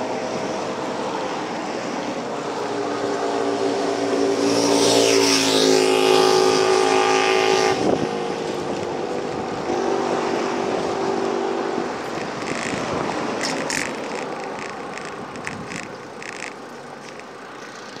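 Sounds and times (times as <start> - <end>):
engine hum: 0.0 - 18.0
motor scooter passing: 0.0 - 18.0
road and wind noise: 0.0 - 18.0
bicycle clicks and rattles: 12.0 - 18.0.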